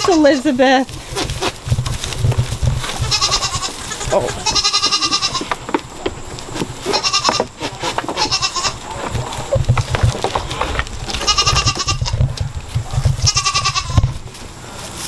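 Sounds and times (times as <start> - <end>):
goats bleating: 0.0 - 1.6, 2.9 - 5.7, 6.8 - 9.5, 11.0 - 12.3, 13.0 - 14.2.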